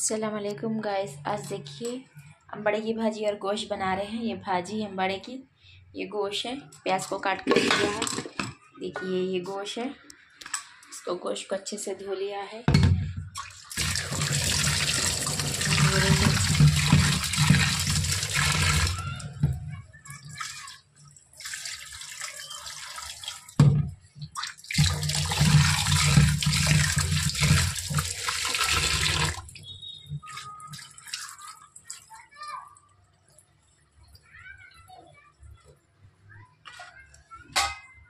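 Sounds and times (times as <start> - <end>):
tap water pouring into bowl: 13.3 - 32.2
rinse water tipped out: 13.4 - 19.5, 24.4 - 32.1.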